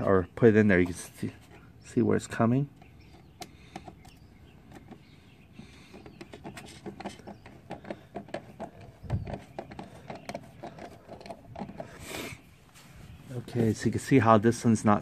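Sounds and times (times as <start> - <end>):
hands clicking and tapping plastic parts: 2.8 - 12.0.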